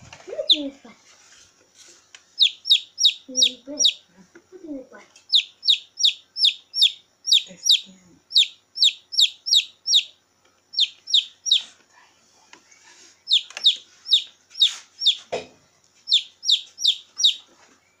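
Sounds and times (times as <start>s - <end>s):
chick peeping shrilly: 0.0s - 0.8s, 2.3s - 4.1s, 5.2s - 11.8s, 13.2s - 15.3s, 16.0s - 17.5s.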